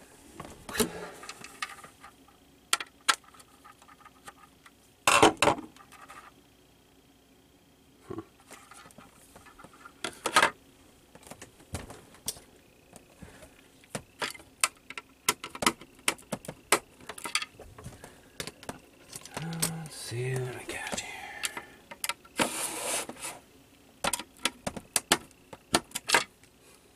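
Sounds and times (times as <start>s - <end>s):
plastic case clicking and knocking: 13.9s - 17.5s, 24.0s - 26.3s.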